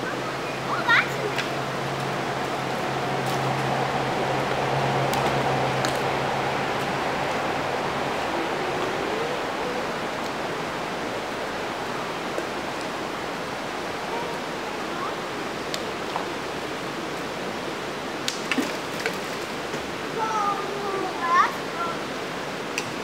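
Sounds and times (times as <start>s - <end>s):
creek water rushing over rocks: 0.0s - 23.0s.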